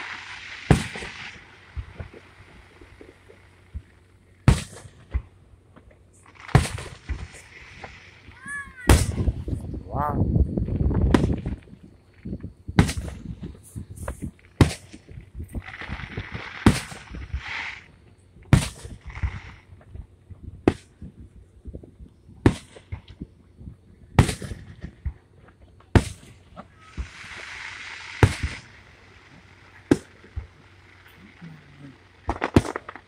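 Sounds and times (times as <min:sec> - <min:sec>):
rushing hiss: 0:00.0 - 0:04.9, 0:06.2 - 0:09.6, 0:12.9 - 0:18.0, 0:26.0 - 0:33.0
firework shells bursting: 0:00.0 - 0:09.6, 0:10.6 - 0:21.2, 0:24.2 - 0:33.0.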